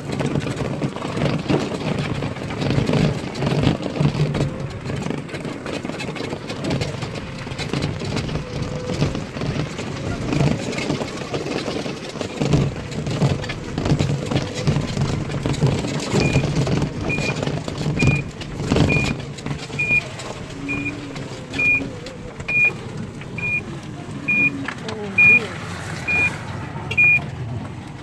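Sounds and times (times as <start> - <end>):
short high beeps: 23.4 - 23.6, 24.3 - 24.6, 25.2 - 25.4, 26.1 - 26.3, 27.0 - 27.2.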